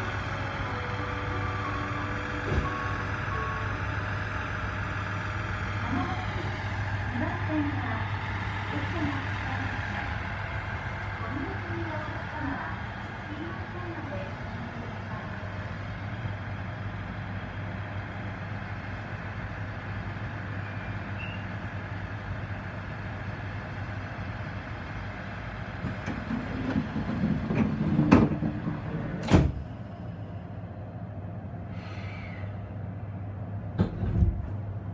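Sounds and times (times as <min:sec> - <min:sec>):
train low hum: 0:00.0 - 0:34.9
train door sliding shut: 0:02.3 - 0:03.1, 0:25.8 - 0:29.8, 0:33.8 - 0:34.6.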